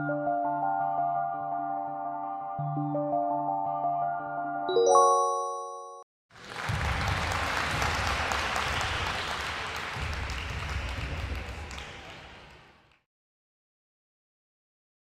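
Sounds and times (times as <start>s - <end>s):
crowd applause: 6.3s - 13.0s.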